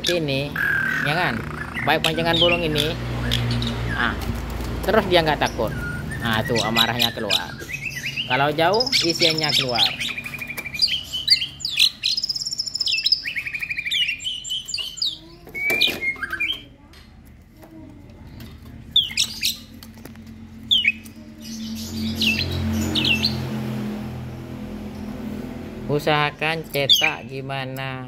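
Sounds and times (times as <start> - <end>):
songbirds chirping and whistling: 0.0 - 16.8, 18.2 - 28.0.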